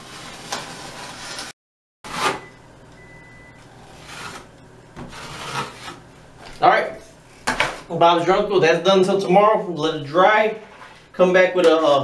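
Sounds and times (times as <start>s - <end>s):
putty knife scraping wall: 0.0s - 1.5s, 3.9s - 6.0s.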